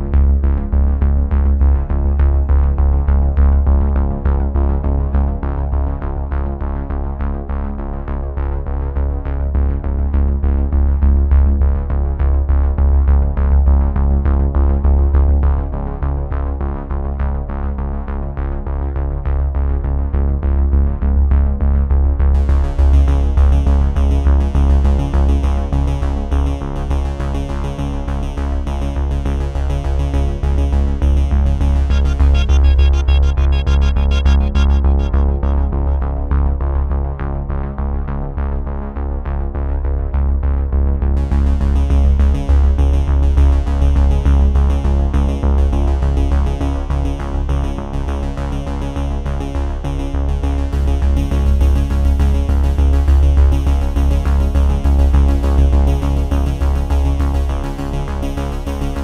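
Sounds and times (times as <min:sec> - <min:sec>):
electronic synthesizer music: 0:30.4 - 0:37.1.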